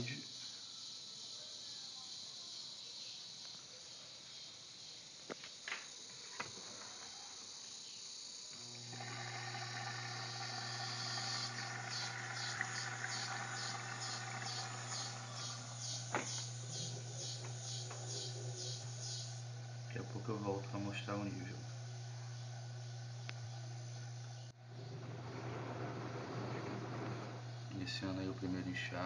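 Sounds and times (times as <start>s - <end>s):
water valve hum: 8.5s - 29.0s
water running into machine: 8.6s - 21.9s.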